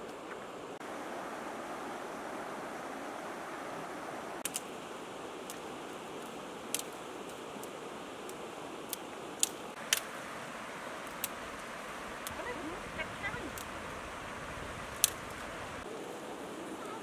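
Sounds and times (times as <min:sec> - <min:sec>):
river rushing: 0:00.0 - 0:17.0
twigs snapping: 0:04.4 - 0:04.8, 0:05.4 - 0:10.2, 0:11.0 - 0:12.4, 0:13.5 - 0:13.8, 0:14.8 - 0:15.5.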